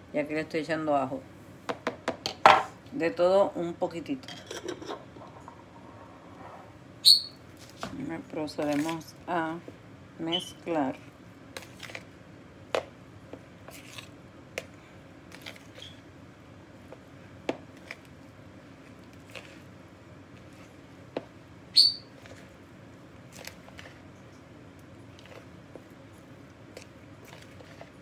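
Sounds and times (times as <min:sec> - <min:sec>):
hands squishing ground meat: 0:22.1 - 0:28.0.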